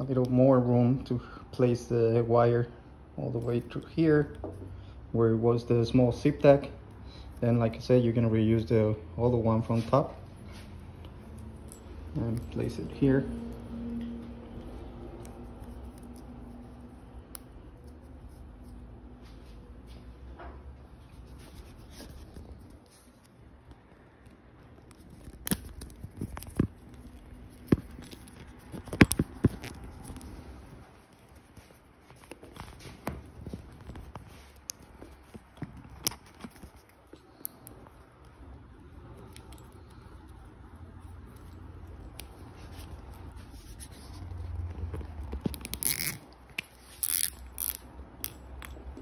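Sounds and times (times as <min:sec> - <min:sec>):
zip tie ratcheting: 0:45.2 - 0:48.4.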